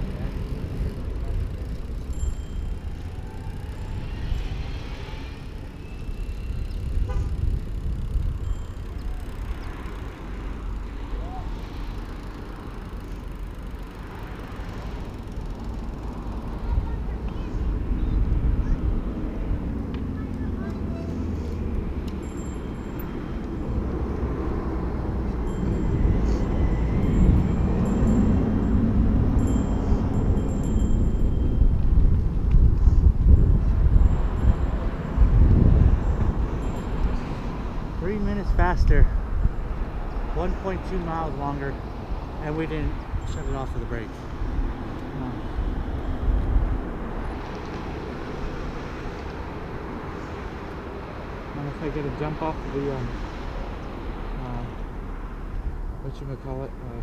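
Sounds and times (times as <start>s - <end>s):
bicycle rolling over asphalt: 0.0s - 18.5s
wind buffeting microphone: 16.4s - 41.0s, 41.7s - 50.2s.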